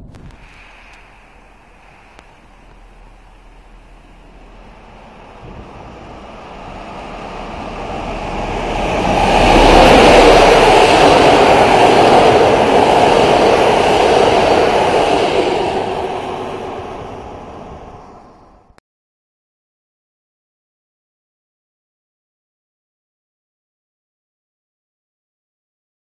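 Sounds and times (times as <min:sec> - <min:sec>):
train wheels clattering on rails: 0:00.3 - 0:17.4.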